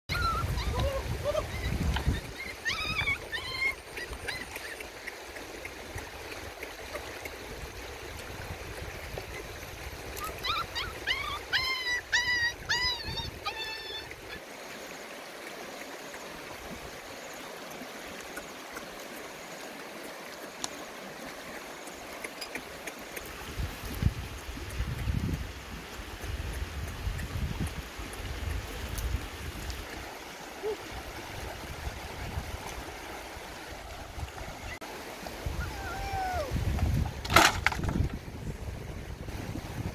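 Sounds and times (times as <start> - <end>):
puppies yelping: 0.1 - 4.9, 10.2 - 14.4
river rushing over stones: 13.2 - 39.9.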